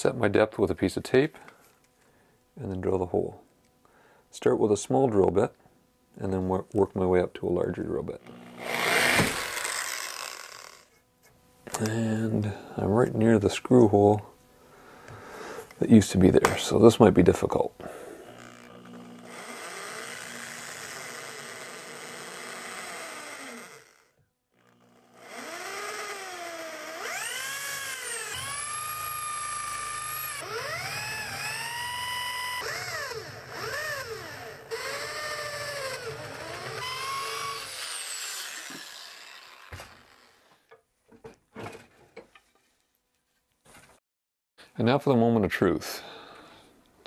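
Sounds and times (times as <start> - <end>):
electric drill boring wood: 8.3 - 11.0, 17.9 - 40.5.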